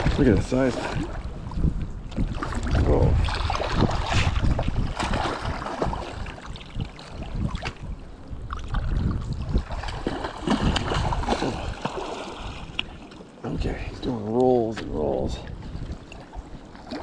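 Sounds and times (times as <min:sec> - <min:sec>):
wind buffeting microphone: 0:00.0 - 0:17.0
fish splashing in water: 0:02.2 - 0:07.8, 0:08.6 - 0:13.1.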